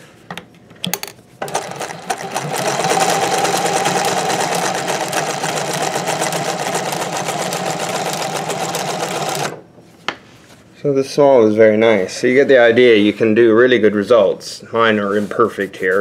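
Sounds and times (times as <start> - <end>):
sewing machine clatter: 1.4 - 9.6.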